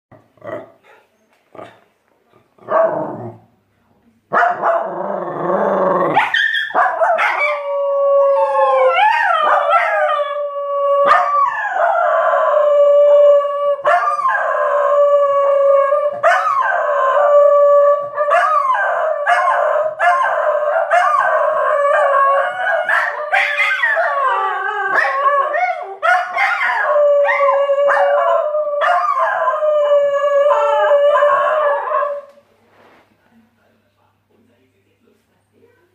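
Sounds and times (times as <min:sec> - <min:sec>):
dog howling: 0:04.8 - 0:32.3.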